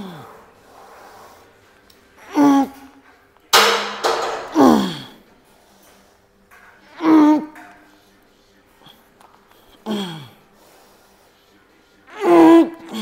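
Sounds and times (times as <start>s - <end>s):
man groaning with effort: 4.5s - 5.2s.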